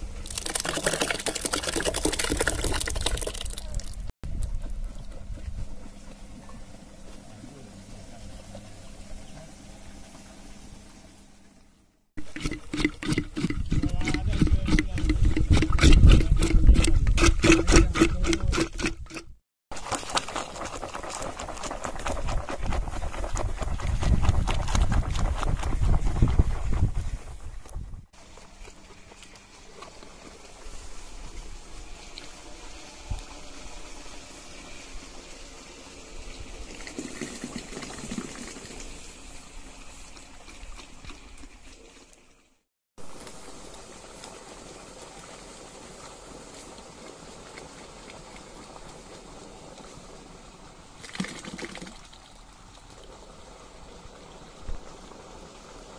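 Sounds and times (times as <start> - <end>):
juice splashing into metal bowl: 0.2 - 4.1
spoons scraping melon flesh: 12.2 - 19.3
beater churning watermelon: 12.2 - 34.7.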